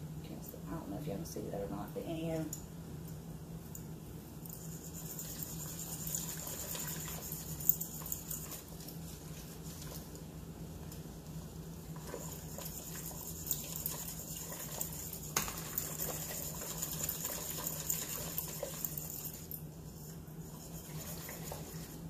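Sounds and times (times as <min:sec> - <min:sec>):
steady low hum: 0:00.0 - 0:22.0
liquid sloshing: 0:11.9 - 0:19.6, 0:20.4 - 0:22.0
whisk clinking against pot: 0:12.0 - 0:19.6.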